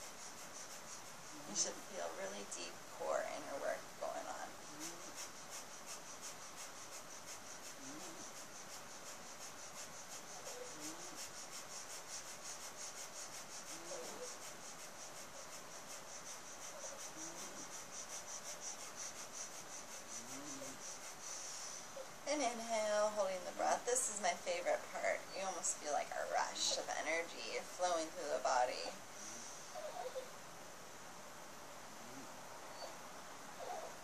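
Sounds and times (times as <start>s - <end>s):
dog whining: 29.8s - 30.3s, 33.6s - 34.0s.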